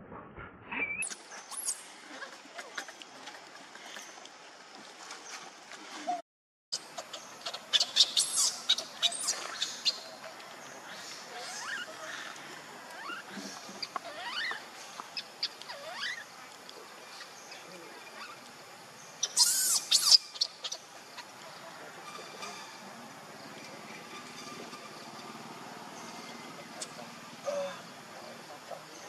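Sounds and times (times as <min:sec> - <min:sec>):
baby monkey crying: 0:13.8 - 0:14.6.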